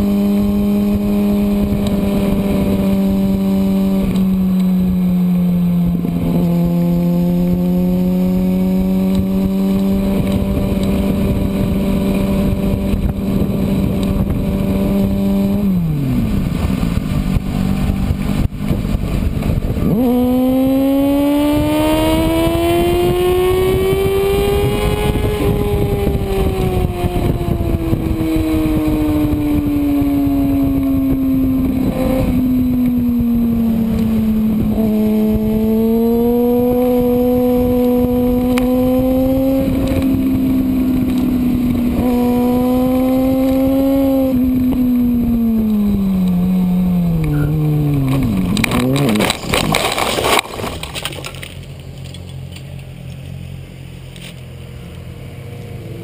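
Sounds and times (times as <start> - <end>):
wind rush: 0.0 - 51.6
motorcycle engine revving: 0.0 - 56.0
motorcycle crashing onto gravel: 48.0 - 52.7.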